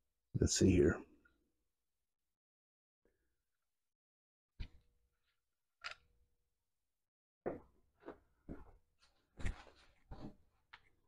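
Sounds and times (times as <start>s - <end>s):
footsteps on concrete: 7.5s - 10.4s.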